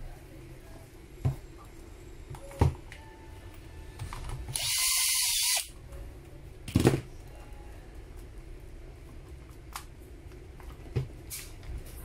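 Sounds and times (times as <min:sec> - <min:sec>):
cordless drill running: 0:04.5 - 0:05.7.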